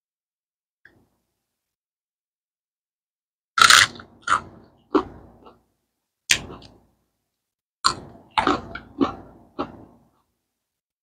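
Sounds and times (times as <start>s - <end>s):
crunchy chewing: 3.6s - 5.6s, 7.8s - 10.2s.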